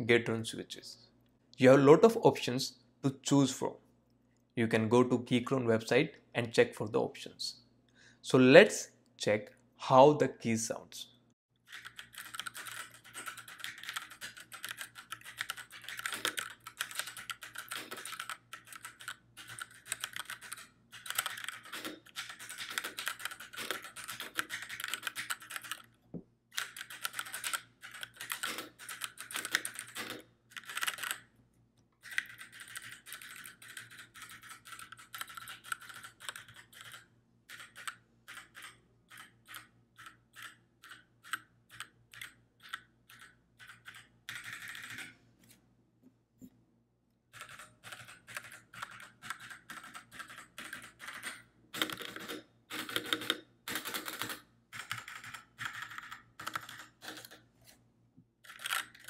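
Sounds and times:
mechanical keyboard typing: 11.7 - 25.9, 26.5 - 31.3, 32.0 - 45.1, 47.3 - 57.4, 58.4 - 59.0.

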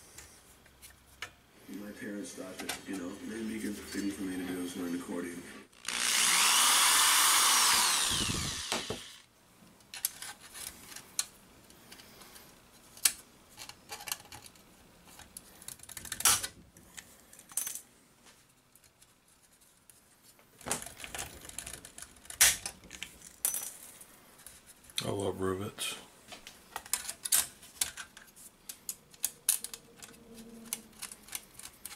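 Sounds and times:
power drill whine: 5.8 - 9.3.

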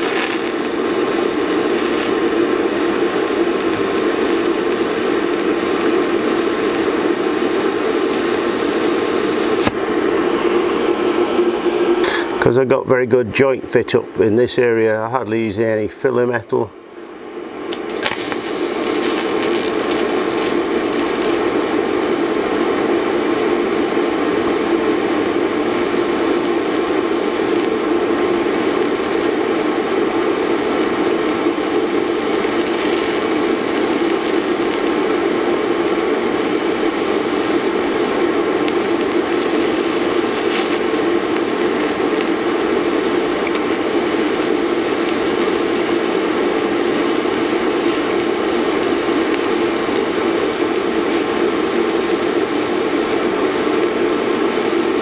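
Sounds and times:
welding arc buzzing hiss: 0.0 - 12.6, 17.7 - 55.0.

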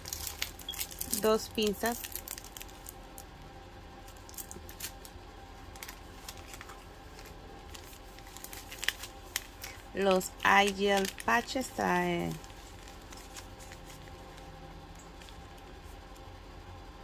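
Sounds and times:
packaging rustling: 0.0 - 3.3, 4.0 - 16.1
steady background hum: 0.0 - 17.0.

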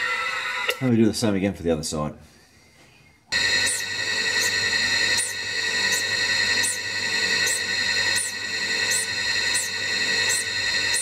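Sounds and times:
grinder high whine: 0.0 - 0.8, 3.3 - 11.0.

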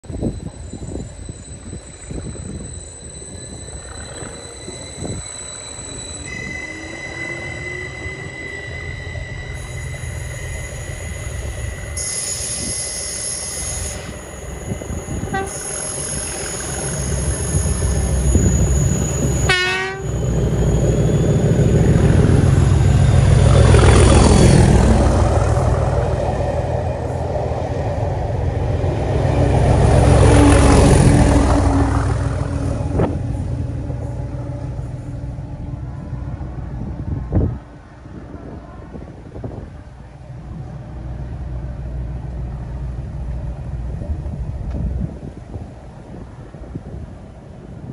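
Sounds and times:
diesel locomotives passing: 0.0 - 47.9
locomotive horns: 15.1 - 15.9, 19.3 - 20.2.

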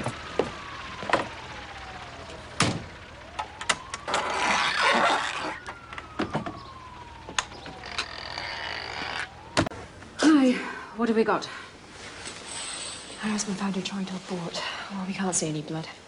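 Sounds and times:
siren wailing: 0.0 - 10.3.

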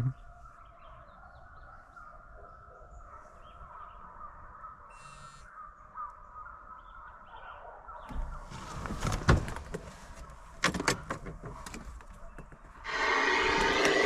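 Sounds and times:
distant hounds baying: 0.1 - 8.5.

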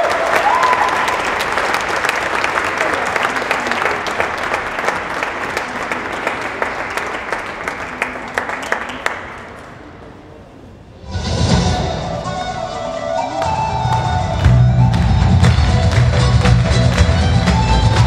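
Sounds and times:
audience applauding: 0.0 - 9.8, 13.4 - 18.0
music: 11.0 - 18.0.

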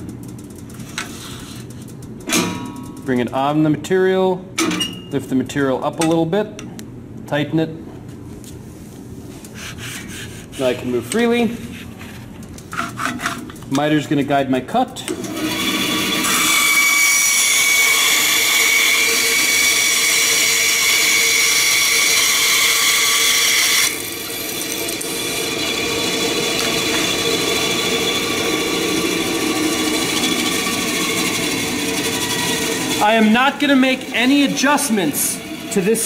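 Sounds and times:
bandsaw cutting wood: 15.1 - 36.0
bandsaw running freely: 15.2 - 36.0.

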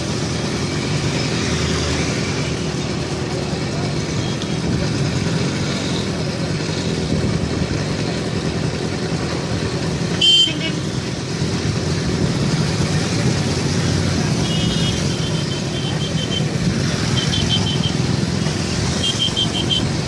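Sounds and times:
motorcycle and scooter traffic: 0.0 - 20.0
vehicle horn toot: 10.2 - 10.9, 14.4 - 16.5, 19.0 - 19.9.

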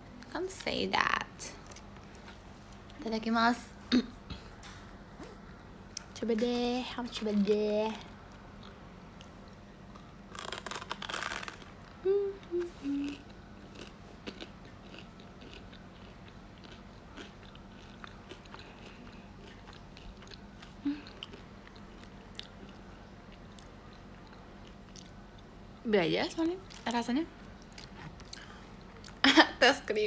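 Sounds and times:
crunchy bite: 9.9 - 12.0
person humming: 12.0 - 13.3
wet chewing: 13.0 - 25.5, 26.7 - 29.2.

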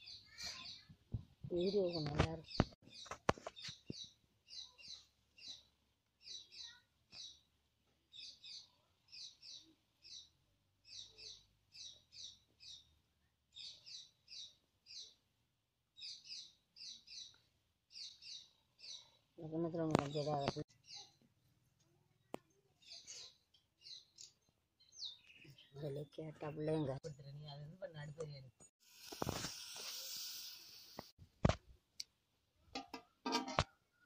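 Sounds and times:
small bird chirping: 0.0 - 15.3, 16.0 - 21.3, 22.2 - 28.4.

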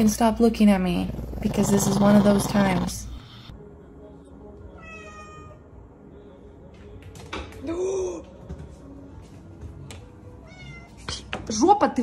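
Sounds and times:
cat vocalizing: 1.0 - 3.5.

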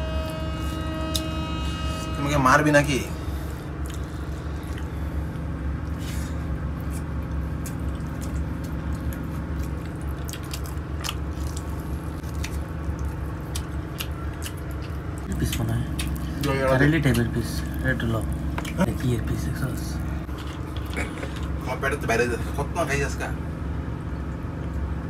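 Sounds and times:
fingers squishing wet food: 6.7 - 19.1
small wet clicks and smacks: 6.9 - 16.3.

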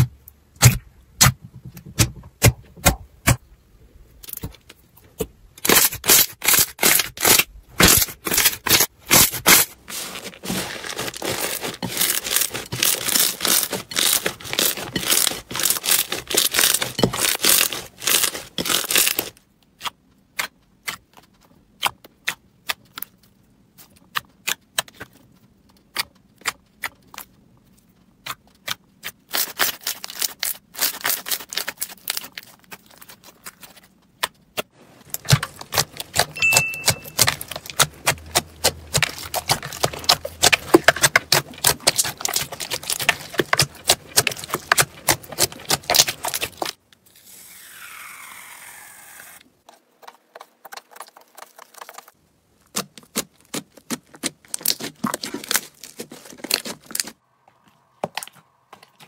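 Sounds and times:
slime crackling and popping: 5.6 - 21.1, 28.2 - 46.8, 50.3 - 57.1.

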